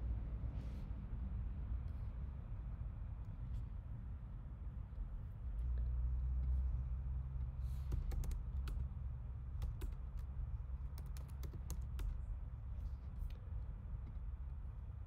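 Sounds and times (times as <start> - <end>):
keyboard typing: 7.9 - 8.8, 9.6 - 10.3, 10.9 - 12.2.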